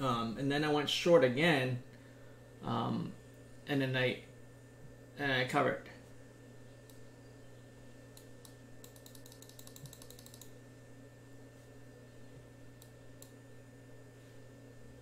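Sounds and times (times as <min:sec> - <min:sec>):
low electrical hum: 0:00.0 - 0:15.0
computer mouse clicks: 0:08.1 - 0:10.6, 0:12.8 - 0:13.4.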